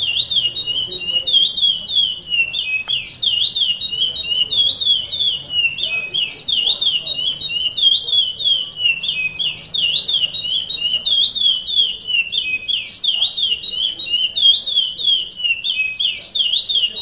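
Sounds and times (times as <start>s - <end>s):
finch singing whistled notes: 0.0s - 17.0s.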